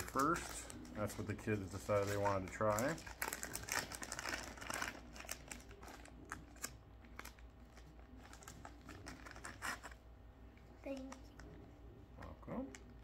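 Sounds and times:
plastic pouch crinkling: 0.0 - 10.0.

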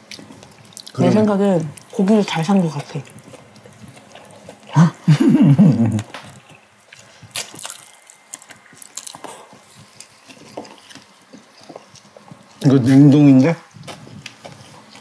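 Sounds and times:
person humming: 4.8 - 6.1.

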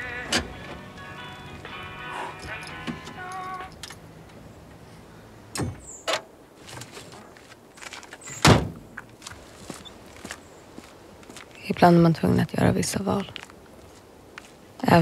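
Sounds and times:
car door clunking open: 0.3 - 0.8, 8.3 - 8.9
car door slamming shut: 8.4 - 8.8.

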